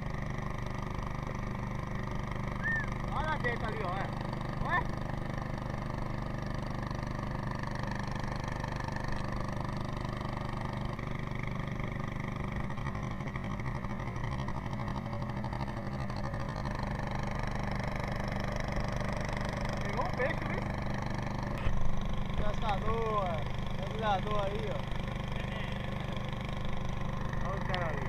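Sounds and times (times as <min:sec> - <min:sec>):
boat motor humming: 0:00.0 - 0:28.0.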